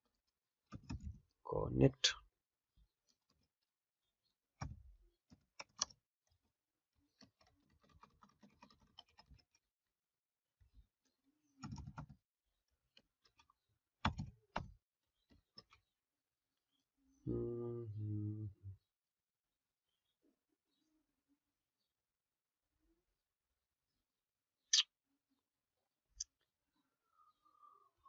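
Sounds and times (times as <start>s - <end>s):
computer keyboard typing: 7.2s - 9.5s, 11.6s - 12.1s.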